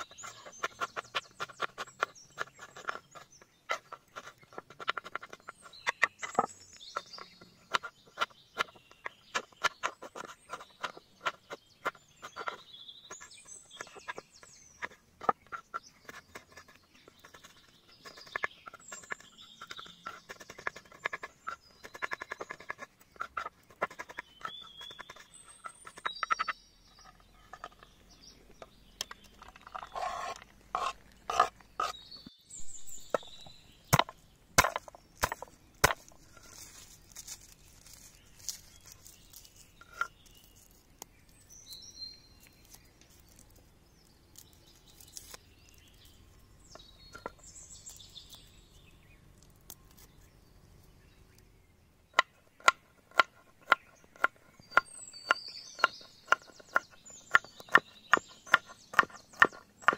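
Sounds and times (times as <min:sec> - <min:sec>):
birds chirping: 0:00.0 - 0:59.9
knife chopping on wooden board: 0:33.9 - 0:36.1, 0:52.1 - 0:59.9.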